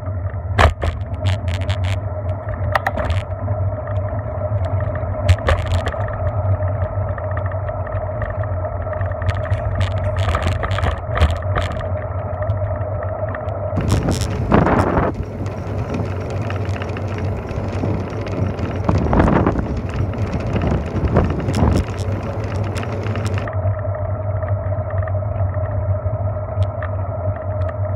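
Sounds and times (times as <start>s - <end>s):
bicycle tyres rolling on pavement: 0.0s - 27.9s
rushes of noise: 13.1s - 23.7s.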